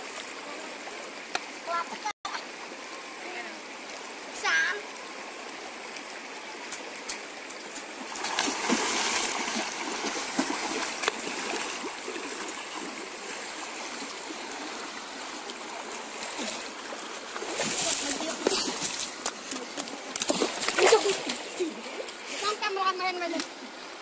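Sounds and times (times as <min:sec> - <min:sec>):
river water flowing over rocks: 0:00.0 - 0:24.0
child splashing through water: 0:08.0 - 0:14.1, 0:15.8 - 0:21.9.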